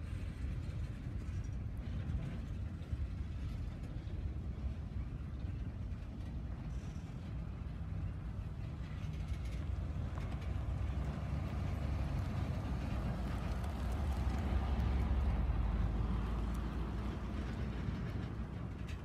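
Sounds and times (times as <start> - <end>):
train wheels rumbling on rails: 0.0 - 19.0
pickup truck driving past: 9.3 - 18.8.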